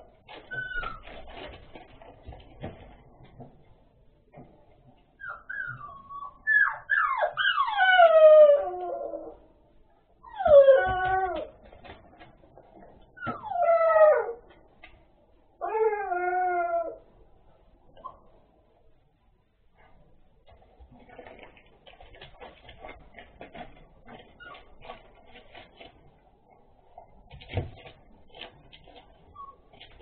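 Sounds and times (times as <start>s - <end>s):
dog whining: 0.4s - 1.3s, 5.2s - 9.5s, 10.2s - 11.6s, 13.1s - 14.5s, 15.6s - 17.1s.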